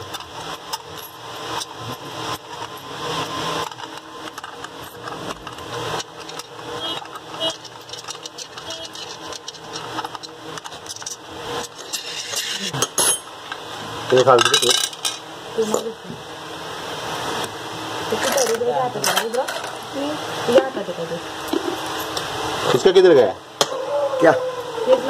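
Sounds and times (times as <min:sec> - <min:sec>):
metal clicks and scrapes: 0:03.6 - 0:12.8.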